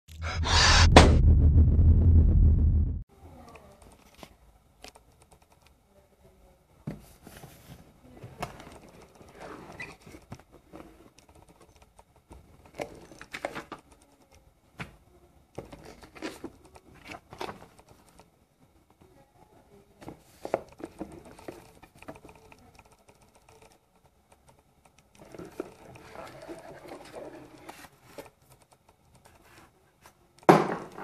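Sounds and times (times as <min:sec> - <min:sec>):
cardboard and paper rustling: 0:06.9 - 0:11.0.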